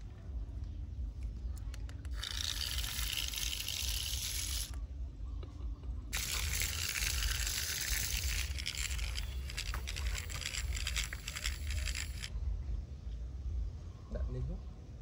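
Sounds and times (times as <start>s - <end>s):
toy motor hissing: 2.0s - 4.8s, 6.1s - 12.3s.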